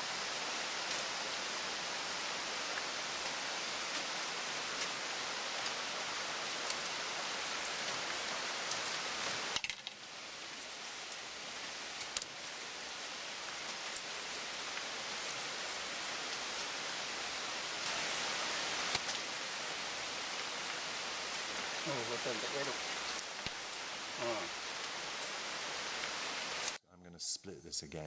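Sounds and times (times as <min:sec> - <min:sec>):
steady hiss: 0:00.0 - 0:28.0.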